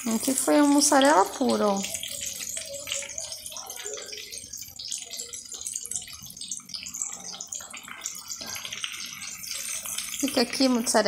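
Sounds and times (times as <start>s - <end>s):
hot oil sizzling and crackling: 0.0s - 11.0s.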